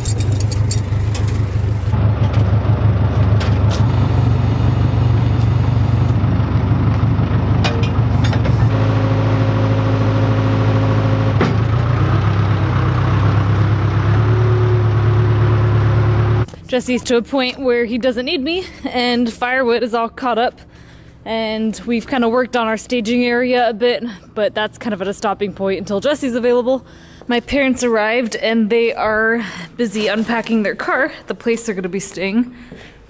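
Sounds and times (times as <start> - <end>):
backhoe engine running: 0.0 - 17.6
sharp metal knocks: 7.6 - 8.7.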